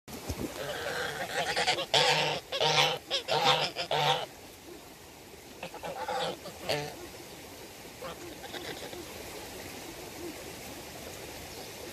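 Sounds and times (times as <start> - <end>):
geese honking: 0.6 - 4.3, 5.6 - 7.0, 8.0 - 9.1.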